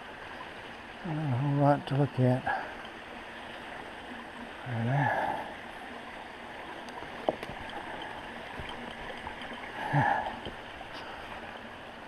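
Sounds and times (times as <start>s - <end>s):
creek water running over rocks: 0.0s - 12.0s.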